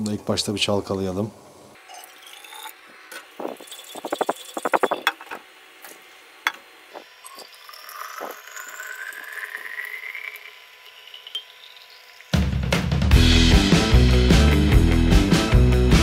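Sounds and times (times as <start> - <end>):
water pouring into bottle: 3.4 - 5.1, 7.3 - 12.4.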